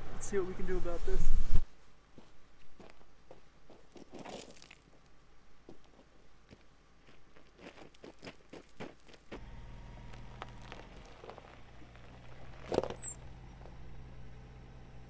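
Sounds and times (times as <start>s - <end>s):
van engine humming: 0.0s - 0.6s, 9.3s - 15.0s
footsteps crunching on gravel: 2.2s - 5.1s, 5.7s - 13.8s
tyres crunching over rocks: 2.2s - 5.1s, 5.7s - 13.8s.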